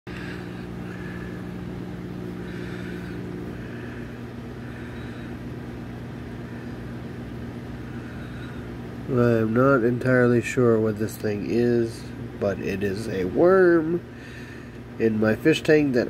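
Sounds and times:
low electrical hum: 0:00.1 - 0:16.0.

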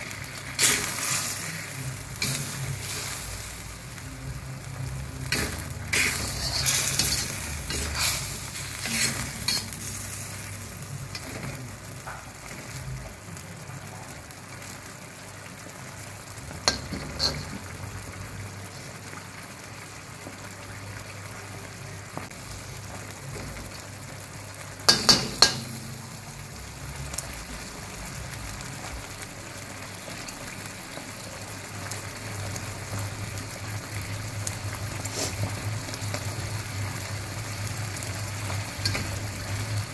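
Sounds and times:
sauce sizzling and bubbling: 0:00.0 - 0:39.9
metal spatula scraping wok: 0:00.4 - 0:03.7, 0:05.2 - 0:11.7, 0:16.6 - 0:17.7, 0:35.1 - 0:35.5, 0:38.8 - 0:39.7.

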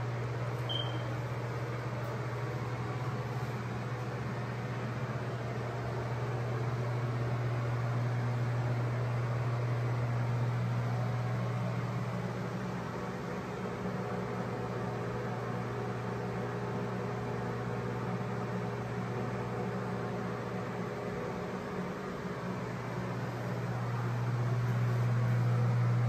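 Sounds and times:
fan humming with hiss: 0:00.0 - 0:26.0.

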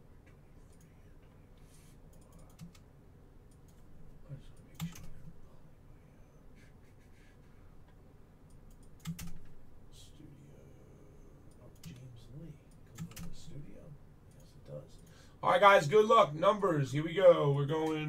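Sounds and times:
keyboard typing and clicking: 0:02.1 - 0:02.8, 0:04.6 - 0:05.3, 0:08.5 - 0:09.6, 0:12.7 - 0:13.5.

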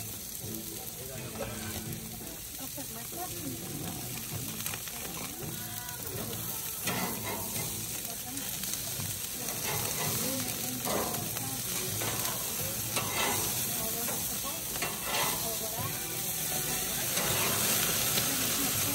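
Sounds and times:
meat sizzling on a grill: 0:00.0 - 0:18.9
metal spatula scraping: 0:06.1 - 0:08.2, 0:09.5 - 0:18.9.

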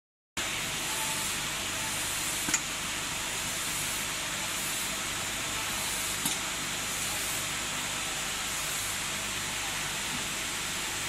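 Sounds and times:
hissing workshop background noise: 0:00.4 - 0:11.0.

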